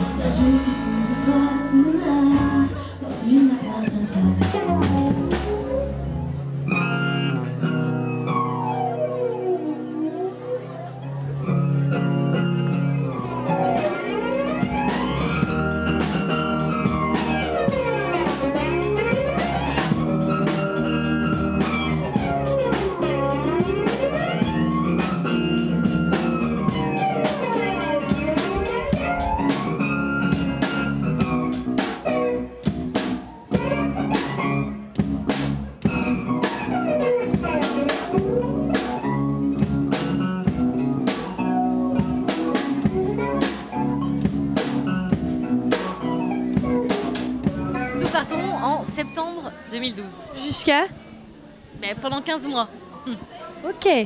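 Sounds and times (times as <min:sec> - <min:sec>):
rock band playing live: 0:00.0 - 0:50.6
drum strokes: 0:13.6 - 0:50.7.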